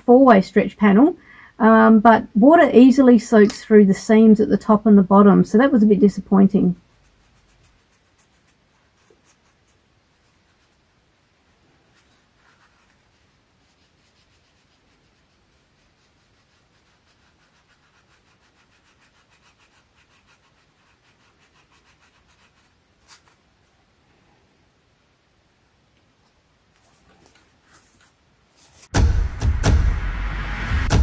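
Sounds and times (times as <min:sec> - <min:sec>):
hands rubbing fabric: 0:06.8 - 0:10.9, 0:11.8 - 0:23.4.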